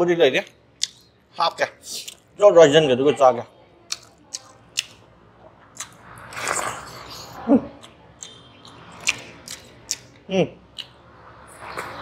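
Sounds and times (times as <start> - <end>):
man chewing with mouth smacks: 1.9 - 2.3, 3.9 - 5.0, 5.7 - 11.0
soft food squish: 5.7 - 10.2.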